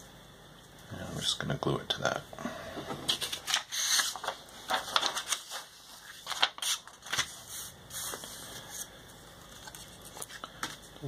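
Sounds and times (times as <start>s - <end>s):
paper sheets rustling: 3.2s - 8.9s.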